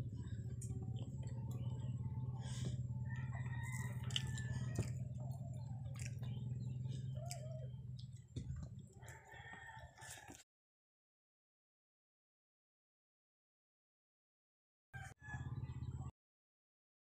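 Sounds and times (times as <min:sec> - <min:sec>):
low hum: 0:00.0 - 0:09.1
chewing: 0:00.0 - 0:10.4.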